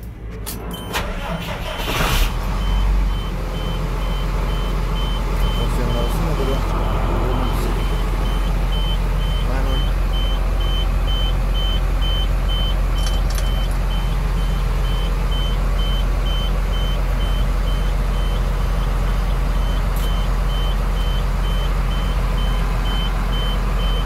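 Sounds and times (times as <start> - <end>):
diesel engine idling: 0.0 - 24.0
warning beeper: 0.6 - 12.7.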